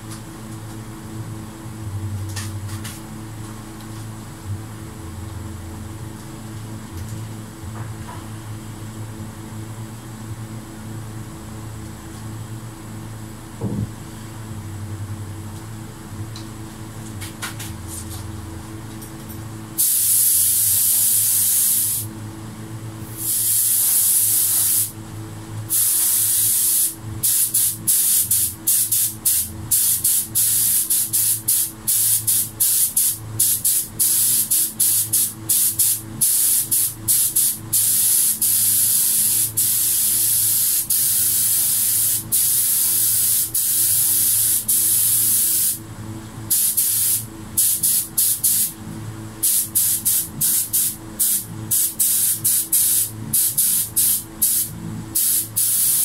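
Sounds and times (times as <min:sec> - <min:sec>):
spray gun hissing: 0:19.8 - 0:22.1, 0:23.1 - 0:24.9, 0:25.7 - 0:45.8, 0:46.5 - 0:48.7, 0:49.4 - 0:56.0.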